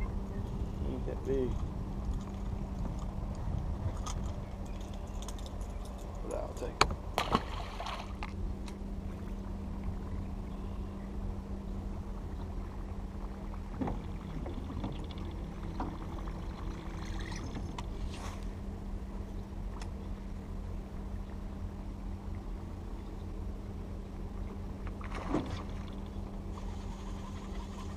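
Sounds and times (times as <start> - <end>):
electric trolling motor humming: 0.0 - 27.9
low rumble: 0.0 - 27.9
fish splashing into water: 7.2 - 8.2.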